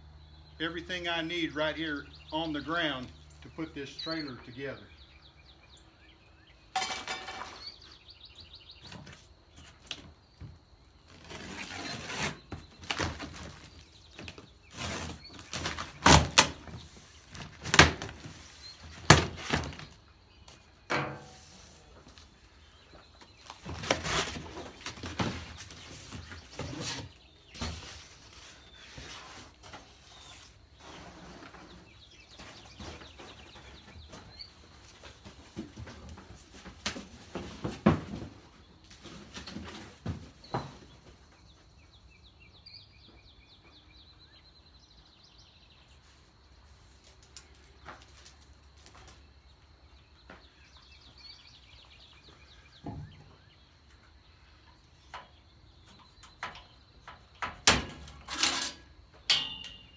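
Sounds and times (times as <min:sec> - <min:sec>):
faint birds chirping: 0:00.0 - 0:59.9
cardboard rustling and scraping: 0:11.0 - 0:20.0, 0:21.1 - 0:40.9.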